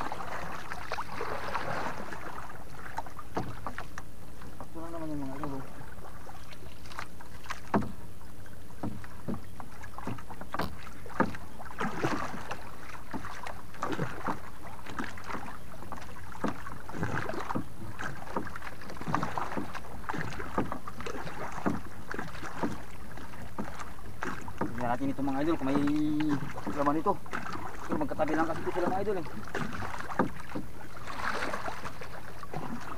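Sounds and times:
water splashing around boat: 0:00.0 - 0:32.9.

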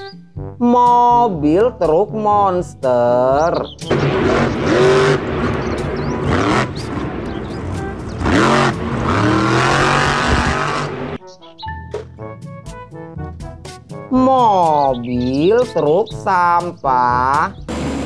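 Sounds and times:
light background music: 0:00.0 - 0:18.0
truck engine revving hard: 0:03.9 - 0:11.2, 0:17.6 - 0:18.0.

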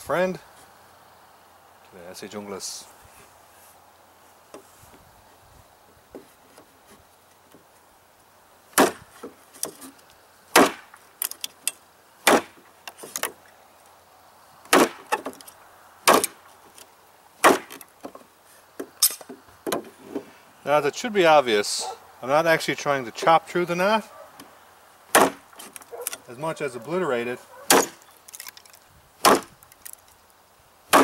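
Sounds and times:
knife chopping wood: 0:08.8 - 0:09.9, 0:10.5 - 0:11.4, 0:12.2 - 0:13.4, 0:14.7 - 0:15.4, 0:16.0 - 0:16.4, 0:17.4 - 0:18.2, 0:25.1 - 0:26.2, 0:27.7 - 0:28.6, 0:29.2 - 0:29.6
small knocks and clicks: 0:29.6 - 0:30.2.

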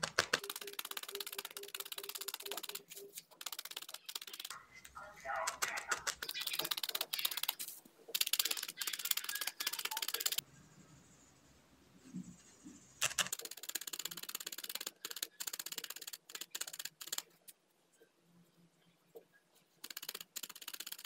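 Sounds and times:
felting needle stabbing foam pad: 0:00.0 - 0:04.5.

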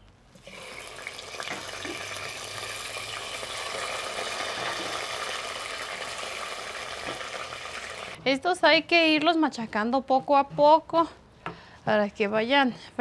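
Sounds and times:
beans sizzling in hot lard: 0:00.4 - 0:08.2.

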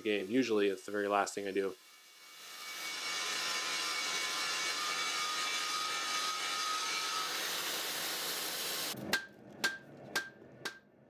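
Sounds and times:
belt grinder grinding steel: 0:01.8 - 0:09.0.

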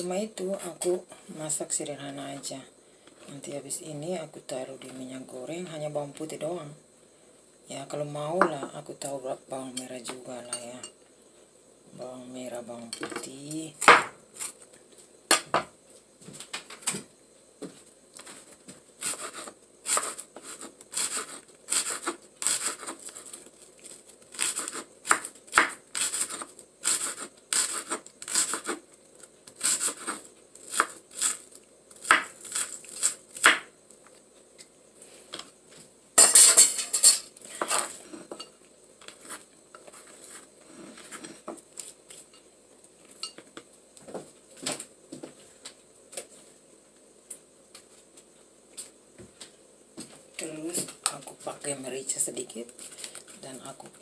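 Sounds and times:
knife chopping on wooden board: 0:13.8 - 0:14.2, 0:24.4 - 0:28.8, 0:32.0 - 0:32.4, 0:33.4 - 0:33.7
knife scraping board: 0:19.0 - 0:23.4, 0:25.6 - 0:28.8, 0:29.6 - 0:30.2, 0:37.6 - 0:41.9.

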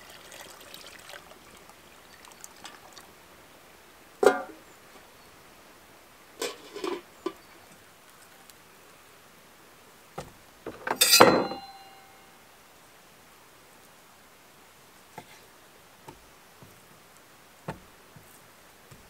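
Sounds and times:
metallic clinks: 0:11.0 - 0:12.2
soft knocks: 0:17.6 - 0:18.3.

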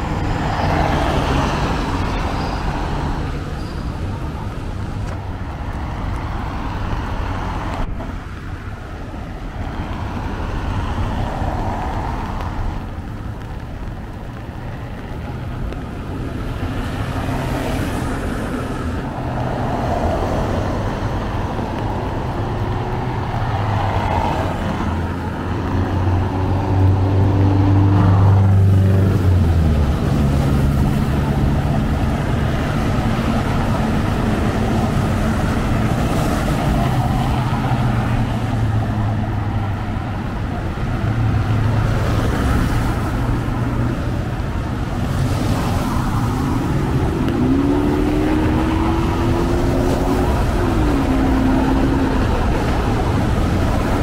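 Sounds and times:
vehicle engines passing: 0:00.0 - 0:54.0
tyres hissing on wet road: 0:00.1 - 0:54.0
vehicle accelerating: 0:15.2 - 0:54.0.

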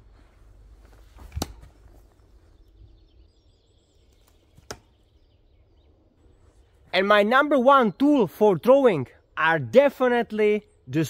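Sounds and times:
faint bird chirps: 0:01.8 - 0:06.8
throwing knife striking wood: 0:04.4 - 0:05.0.

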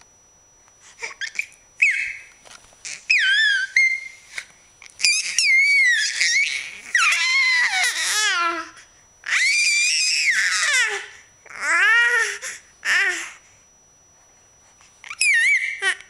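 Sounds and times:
baby squealing with laughter: 0:01.0 - 0:02.3, 0:02.9 - 0:04.2, 0:05.0 - 0:08.6, 0:09.3 - 0:10.9, 0:15.1 - 0:16.0.

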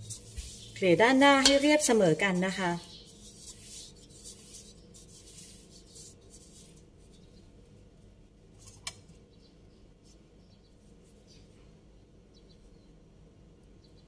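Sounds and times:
utensil scraping cake batter: 0:00.0 - 0:07.3.

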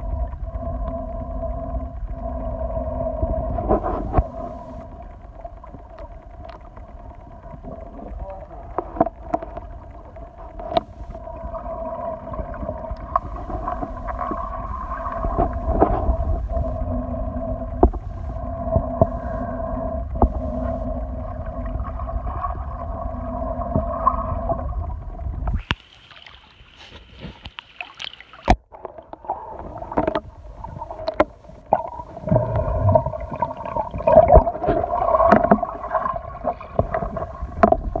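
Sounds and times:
underwater water rumble: 0:00.0 - 0:38.0.

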